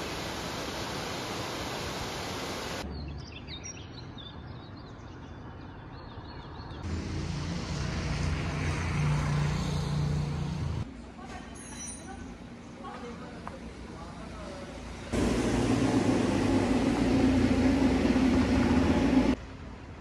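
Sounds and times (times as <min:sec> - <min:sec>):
vehicle engine humming: 0:06.8 - 0:10.9, 0:13.9 - 0:19.4.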